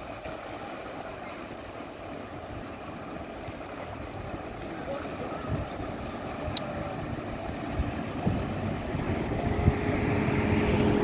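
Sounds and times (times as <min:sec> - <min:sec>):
engine humming: 0:02.4 - 0:11.0
wind on microphone: 0:04.0 - 0:11.0.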